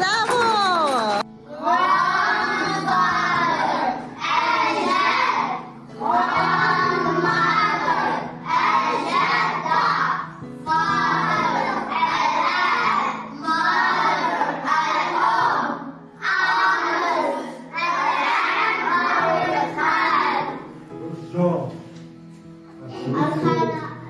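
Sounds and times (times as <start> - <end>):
children singing in unison: 1.5 - 20.8.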